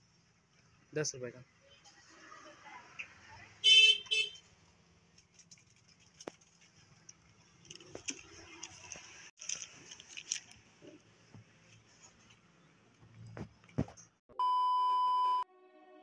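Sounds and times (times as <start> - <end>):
vehicle horn honking: 3.6 - 4.4
faint clicks and rustling: 5.1 - 14.1.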